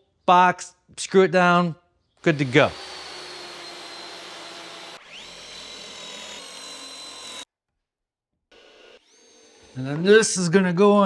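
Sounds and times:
power drill whining: 2.2s - 7.5s, 8.5s - 10.2s.

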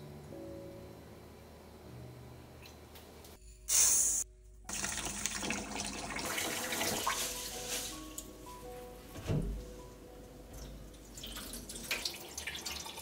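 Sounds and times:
tap water running into bowl: 4.7s - 7.2s, 11.1s - 13.0s.

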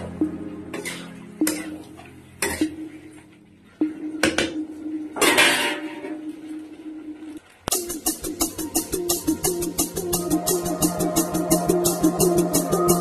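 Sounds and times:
spatula clanking on metal pan: 5.2s - 6.0s
metal pan ringing: 5.2s - 6.2s.

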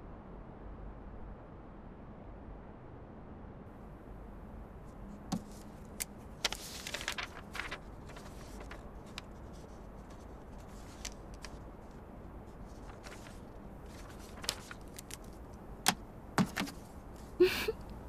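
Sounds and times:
faint room hiss: 0.0s - 18.0s
paper rustling: 4.9s - 17.4s.

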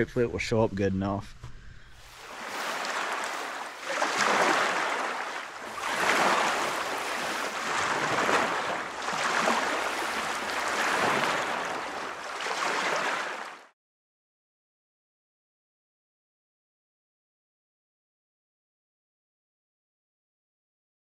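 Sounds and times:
ocean waves washing in: 2.0s - 13.7s.

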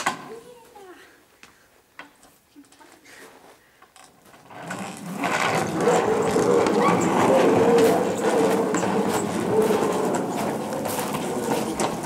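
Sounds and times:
skateboard wheels rolling on concrete: 4.2s - 12.0s.

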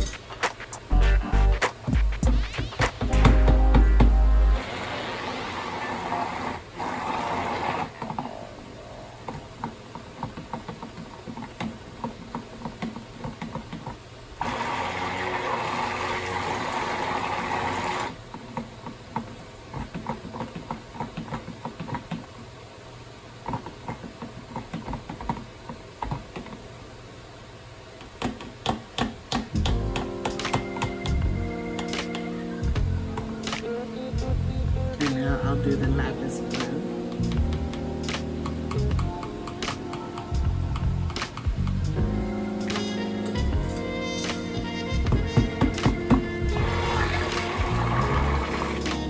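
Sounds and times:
stick blender running: 4.6s - 8.0s, 14.4s - 18.2s, 45.2s - 49.0s.

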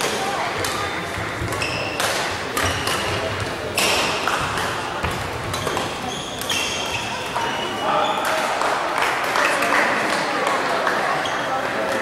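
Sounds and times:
rackets smacking shuttlecock: 0.0s - 7.5s
shoes squeaking on floor: 1.4s - 4.2s, 4.8s - 8.4s.

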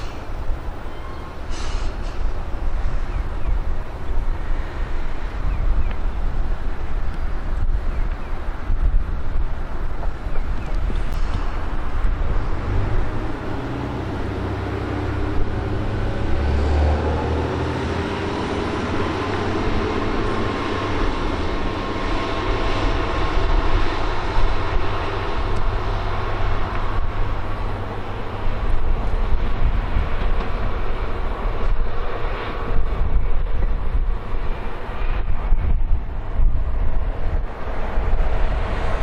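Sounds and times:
diesel railcar engine whining: 0.0s - 39.0s
train wheels on rails: 0.0s - 39.0s.

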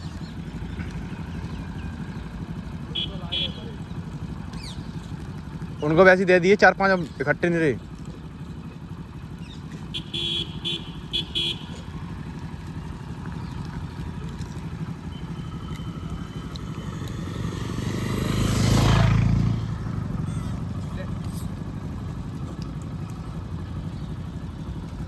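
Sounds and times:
vehicle engine running: 0.0s - 25.0s
car horn beeps: 2.9s - 3.6s, 9.9s - 11.8s
vehicle passing: 9.3s - 25.0s.

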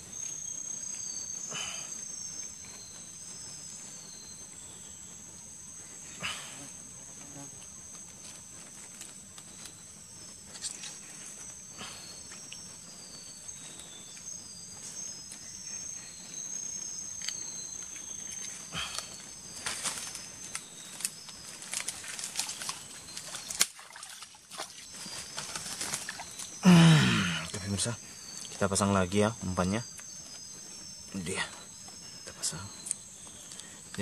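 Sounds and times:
insects droning: 0.0s - 34.0s
dry leaves and twigs rustling: 7.6s - 34.0s.

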